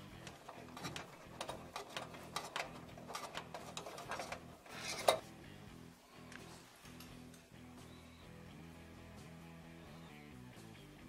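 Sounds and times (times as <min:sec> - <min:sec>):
clicks and metallic rattles: 0:00.1 - 0:05.3.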